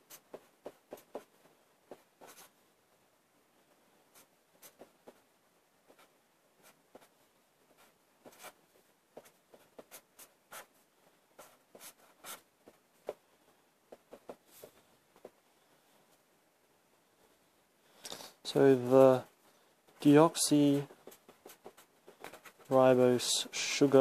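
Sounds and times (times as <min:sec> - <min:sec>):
marker drawing on paper: 0:00.0 - 0:02.6, 0:04.1 - 0:05.3, 0:05.9 - 0:10.8, 0:11.4 - 0:13.2, 0:13.9 - 0:15.4, 0:20.6 - 0:22.8.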